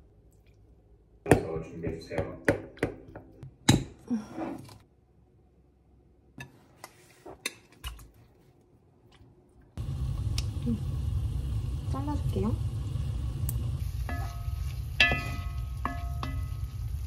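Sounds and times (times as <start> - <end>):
low rumbling hiss: 9.8 - 17.0
utensils clinking against pot: 14.1 - 16.6.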